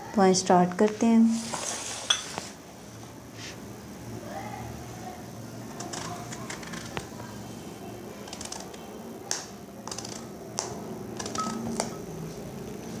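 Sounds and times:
sharp clicks and snaps: 0:08.3 - 0:11.9.

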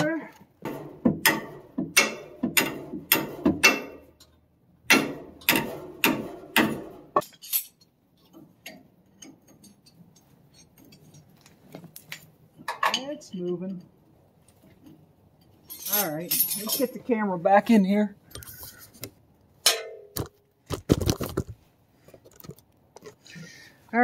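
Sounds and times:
metal-on-metal knocks: 0:00.6 - 0:04.3, 0:04.9 - 0:07.4.

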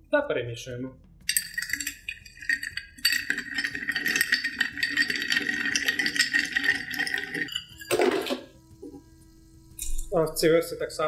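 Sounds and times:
spoon stirring ice in glass: 0:01.3 - 0:08.5.

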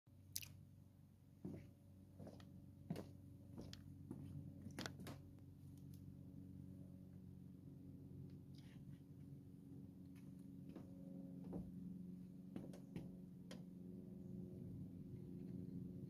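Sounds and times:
footsteps on wooden deck: 0:01.4 - 0:05.3, 0:10.1 - 0:11.8, 0:12.5 - 0:13.7.

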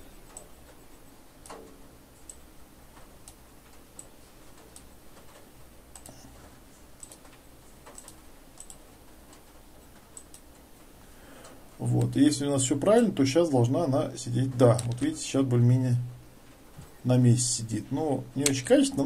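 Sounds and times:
computer mouse clicking: 0:00.3 - 0:00.5, 0:01.4 - 0:06.2, 0:07.0 - 0:10.7.

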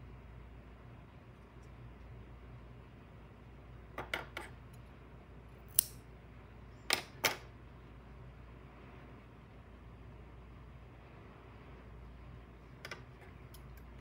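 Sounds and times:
scissors clicking: 0:05.7 - 0:06.0.

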